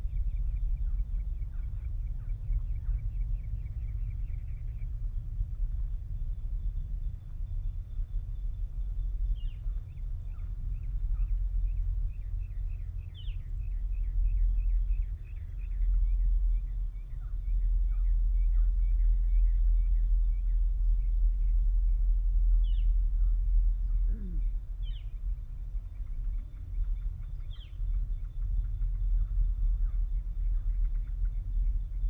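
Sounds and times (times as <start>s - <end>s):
low outdoor rumble: 0.0s - 32.0s
bird chirping: 7.1s - 32.0s.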